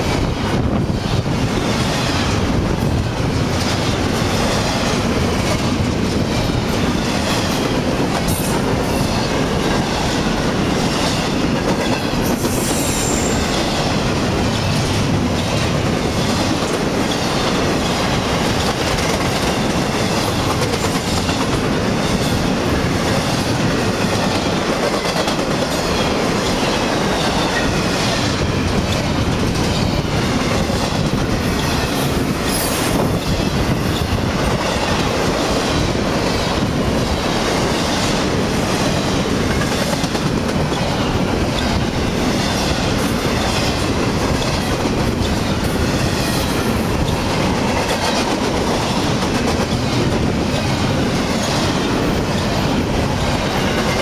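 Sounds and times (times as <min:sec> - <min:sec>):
clickety-clack of wheels: 0:00.0 - 0:54.0
freight train wheels on rails: 0:00.0 - 0:54.0.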